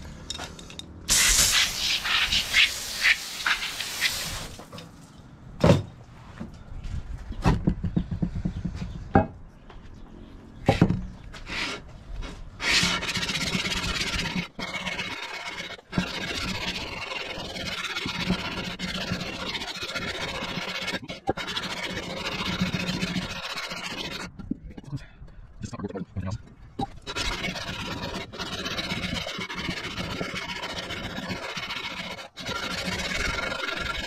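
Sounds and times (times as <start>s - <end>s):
metal sanding on sandpaper: 1.1s - 4.5s, 12.6s - 24.3s.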